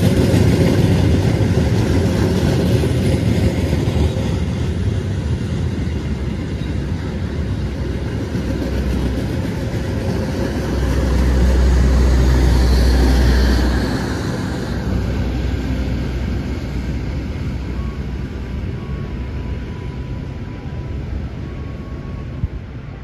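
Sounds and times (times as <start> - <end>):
passenger train rumbling past: 0.0 - 23.0.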